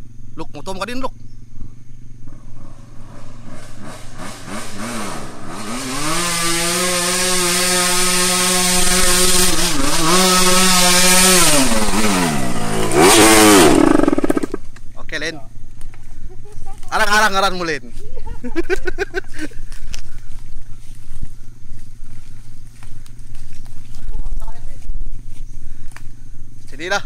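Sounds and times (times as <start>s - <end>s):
motorcycle engine revving: 0.0s - 14.8s.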